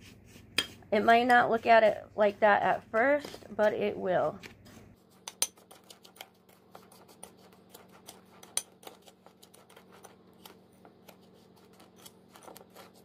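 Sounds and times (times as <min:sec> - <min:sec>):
spoon scraping gritty scrub in bowl: 0:00.0 - 0:13.0.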